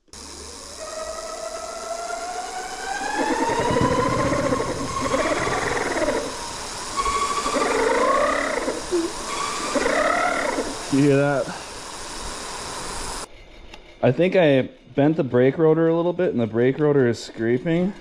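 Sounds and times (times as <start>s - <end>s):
electric motor whine: 0.0s - 13.3s
wavering scraping: 0.2s - 12.0s.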